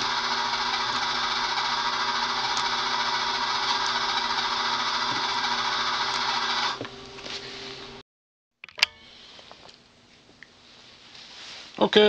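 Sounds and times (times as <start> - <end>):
welder arcing with crackling buzz: 0.0 - 7.2
low electrical hum: 0.0 - 8.0, 8.7 - 12.0.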